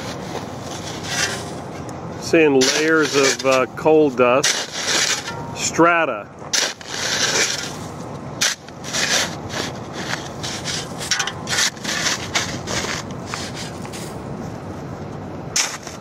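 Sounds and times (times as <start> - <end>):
rough rubbing and scraping: 0.0 - 1.8, 2.4 - 3.7, 4.4 - 5.7, 6.5 - 14.2, 15.6 - 16.0.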